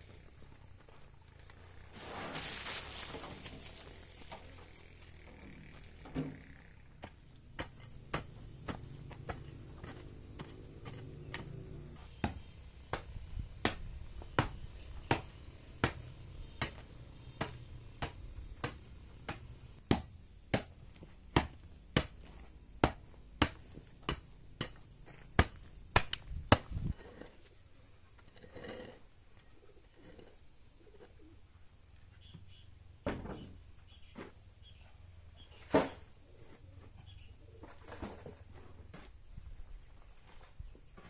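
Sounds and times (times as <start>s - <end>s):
hoe chopping stony soil: 1.9s - 5.1s, 6.0s - 27.5s.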